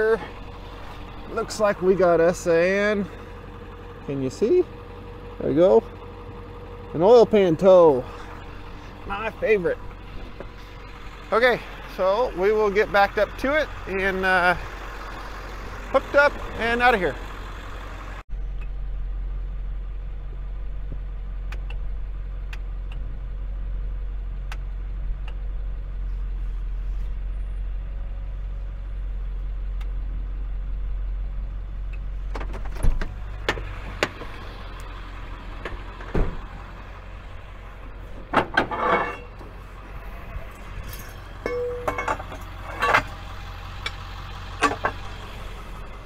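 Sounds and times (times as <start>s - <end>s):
truck engine idling: 0.0s - 46.0s
metal knocks and rattles: 38.1s - 39.6s, 40.6s - 43.3s.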